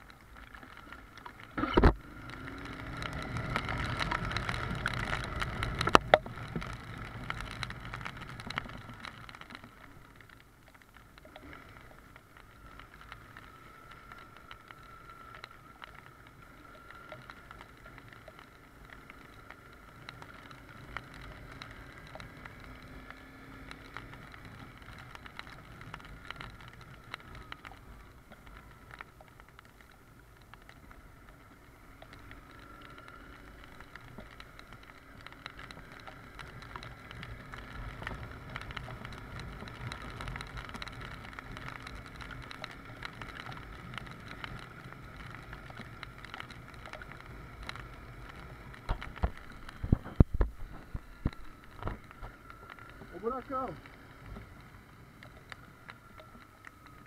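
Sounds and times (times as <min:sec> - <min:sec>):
wet tyre noise: 0:00.0 - 0:57.0
wind: 0:00.0 - 0:57.0
motorcycle engine: 0:00.7 - 0:09.4, 0:12.5 - 0:29.0.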